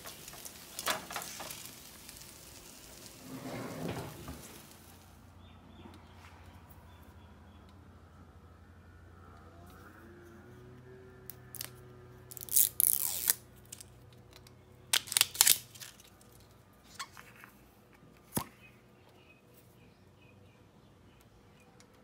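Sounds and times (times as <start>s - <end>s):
crackling rustling noise: 0.0s - 5.3s, 11.4s - 18.3s.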